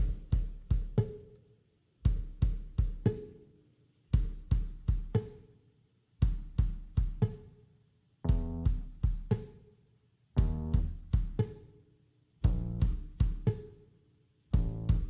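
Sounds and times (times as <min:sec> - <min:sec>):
drum kit beat: 0:00.0 - 0:01.4, 0:02.0 - 0:03.5, 0:04.1 - 0:05.5, 0:06.2 - 0:07.6, 0:08.2 - 0:09.6, 0:10.4 - 0:11.7, 0:12.4 - 0:13.8, 0:14.5 - 0:15.0.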